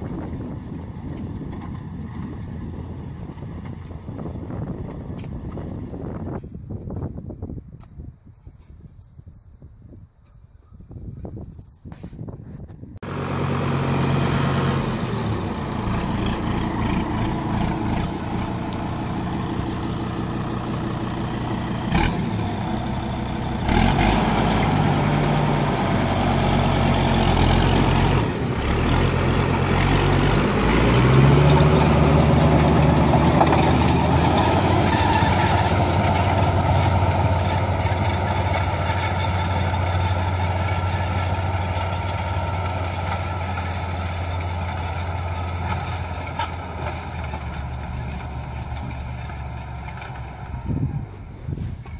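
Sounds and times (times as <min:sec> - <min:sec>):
tractor diesel engine humming: 0:00.0 - 0:06.4, 0:13.0 - 0:51.9.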